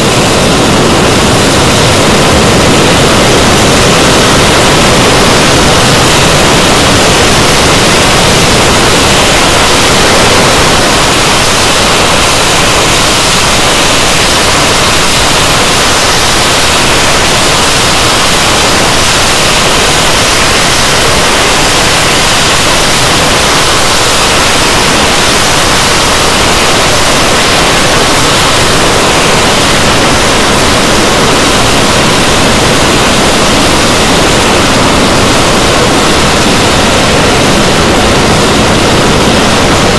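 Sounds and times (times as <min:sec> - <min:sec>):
jet engines roaring: 0:00.0 - 0:39.9.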